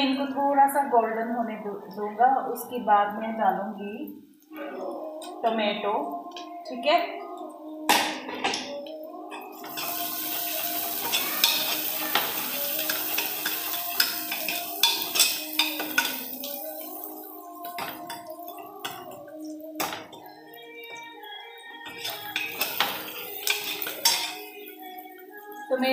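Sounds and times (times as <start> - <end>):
onions sizzling in hot oil: 9.5 - 20.0, 21.9 - 25.6.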